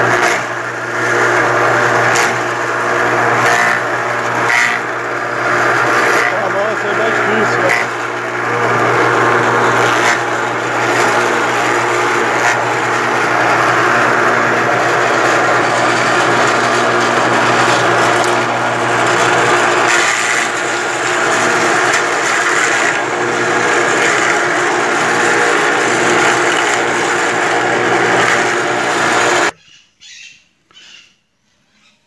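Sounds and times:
forage chopper motor hum: 0.0s - 29.6s
stems and leaves being shredded: 0.0s - 29.6s.

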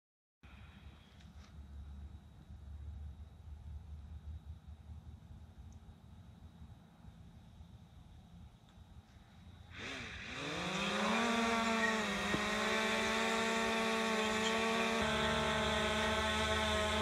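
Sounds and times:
drone propellers whining: 9.7s - 17.0s.

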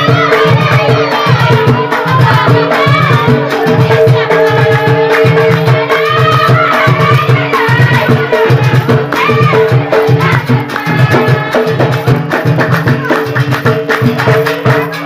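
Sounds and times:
frame drums beating: 0.0s - 15.0s
group singing: 0.0s - 15.0s.

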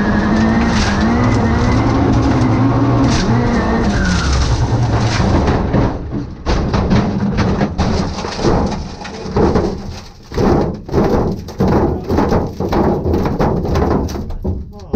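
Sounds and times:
car engine running low: 0.0s - 6.7s
tyres rolling over gravel: 0.0s - 14.9s
knocking and rattling: 0.2s - 14.9s.

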